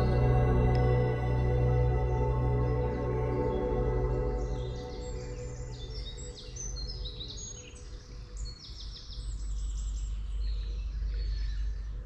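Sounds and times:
steady low rumble: 0.0 - 7.0
songbirds singing: 1.7 - 12.0.

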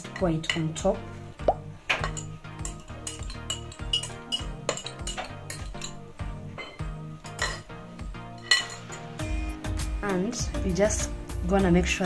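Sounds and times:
background music with steady beat: 0.0 - 12.0
whisk and bowl clinking on pan: 1.9 - 6.0, 6.6 - 7.7, 8.4 - 9.2.

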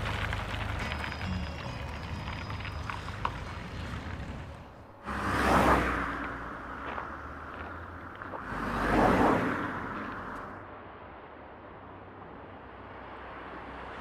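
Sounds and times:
rushing whooshes: 4.1 - 11.3.

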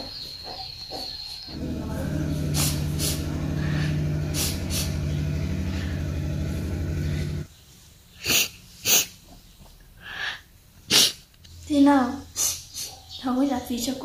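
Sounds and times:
steady low hum: 1.5 - 7.5.

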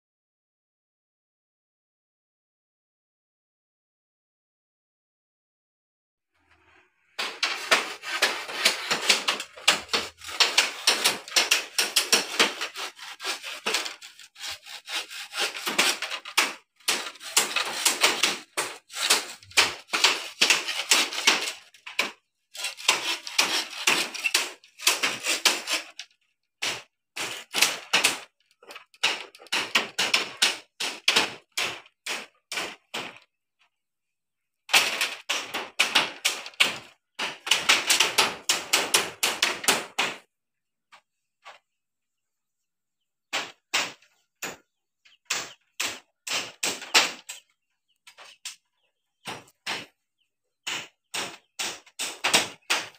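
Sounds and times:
saw cutting bamboo: 7.2 - 33.2, 45.3 - 47.5, 50.6 - 52.9.

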